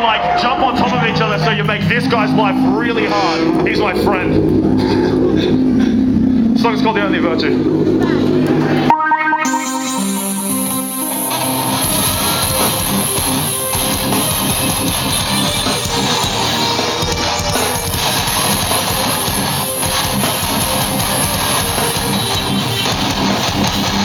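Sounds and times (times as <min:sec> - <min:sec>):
electric guitars strumming: 0:00.0 - 0:24.0
drum kit: 0:07.8 - 0:24.0.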